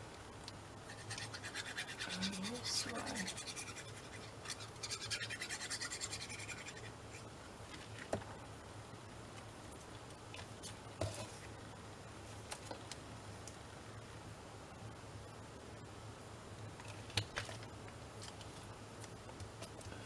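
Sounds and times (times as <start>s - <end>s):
glue nozzle scratching paper: 0.9s - 6.9s.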